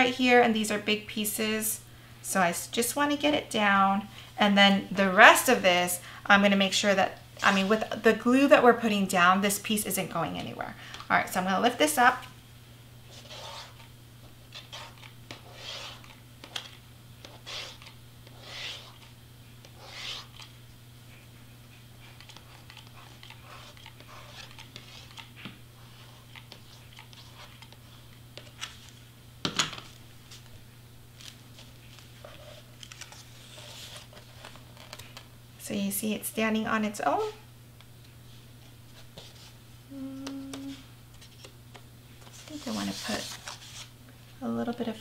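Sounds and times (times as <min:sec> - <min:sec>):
low steady hum: 0:00.0 - 0:45.0
soft rustles of card: 0:29.8 - 0:35.3, 0:40.2 - 0:44.0.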